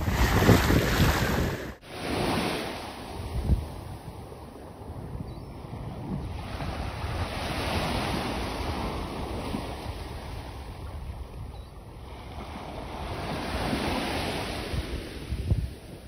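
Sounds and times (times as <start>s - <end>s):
surf washing onto beach: 0.0s - 3.9s
wind rumbling on microphone: 0.0s - 16.0s.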